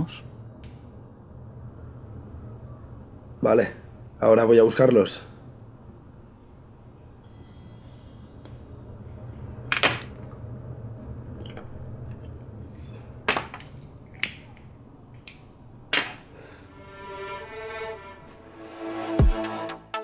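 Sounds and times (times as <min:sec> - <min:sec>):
high steady whistling tone: 0:00.0 - 0:03.4, 0:07.2 - 0:11.4, 0:16.4 - 0:18.2.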